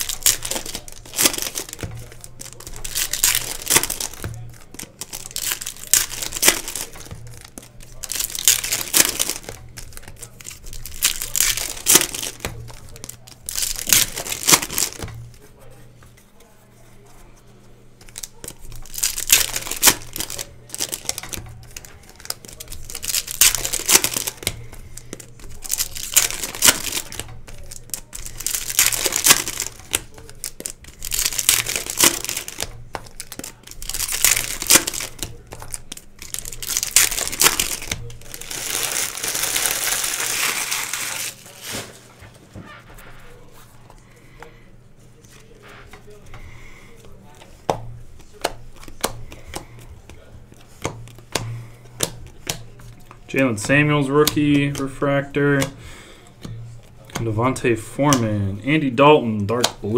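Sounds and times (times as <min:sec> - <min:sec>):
foil wrappers tearing and crinkling: 0:00.0 - 0:15.5, 0:18.0 - 0:44.3.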